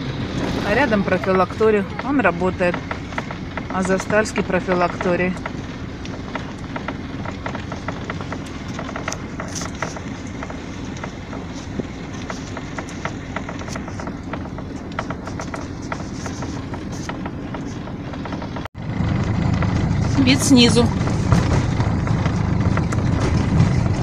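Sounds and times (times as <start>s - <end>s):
low background rumble: 0.0s - 24.0s
footsteps on a path: 0.3s - 18.0s.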